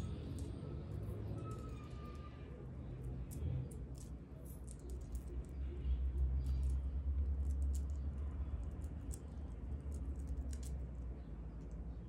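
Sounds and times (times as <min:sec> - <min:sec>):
low steady rumble: 0:00.0 - 0:12.0.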